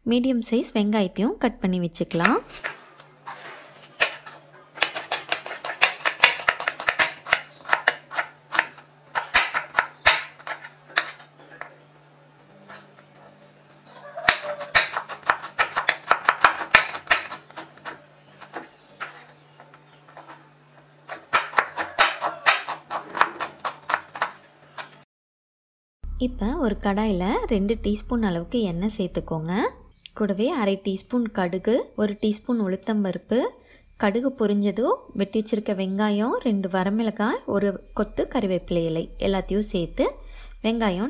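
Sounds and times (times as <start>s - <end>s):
knife chopping on wooden board: 3.8s - 11.8s, 14.2s - 19.3s, 21.1s - 25.0s
faint low hum: 26.1s - 41.0s.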